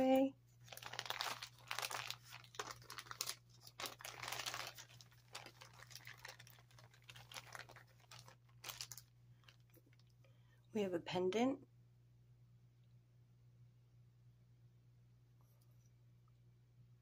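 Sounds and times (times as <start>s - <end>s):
faint low hum: 0.0s - 17.0s
plastic bags crinkling: 0.1s - 10.1s.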